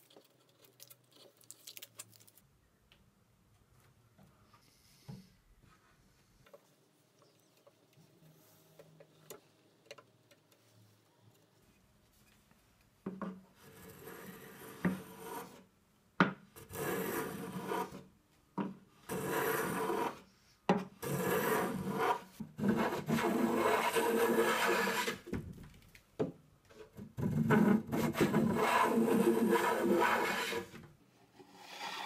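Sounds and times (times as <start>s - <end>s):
plane rasping on wood: 21.0s - 25.2s, 27.4s - 30.7s.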